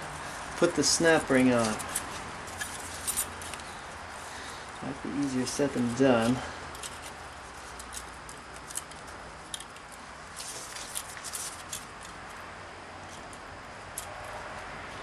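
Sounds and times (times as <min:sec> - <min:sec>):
metal clicks and scrapes: 0:05.7 - 0:12.4.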